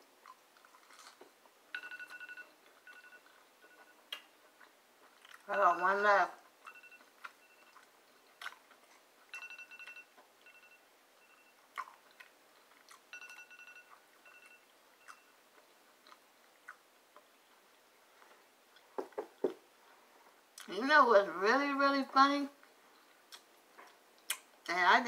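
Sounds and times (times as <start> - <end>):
faint chewing: 0.0 - 5.6, 6.4 - 20.8, 22.6 - 24.7
phone alert beeps: 1.8 - 4.0, 6.7 - 7.8, 9.3 - 11.6, 13.1 - 15.4.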